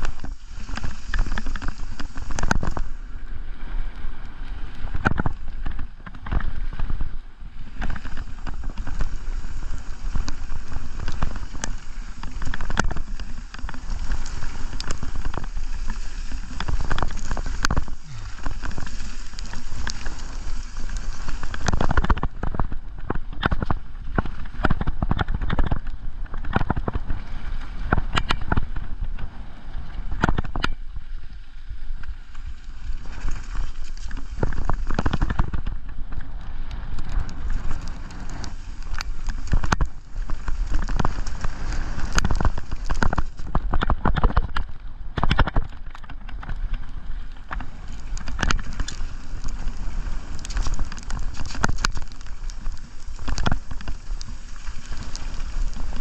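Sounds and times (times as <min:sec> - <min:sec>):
bike knocking and rattling: 0:00.0 - 0:02.9, 0:07.8 - 0:27.2, 0:27.8 - 0:29.2, 0:30.1 - 0:31.1, 0:36.9 - 0:56.0
bike tyres rumbling on gravel: 0:00.0 - 0:56.0.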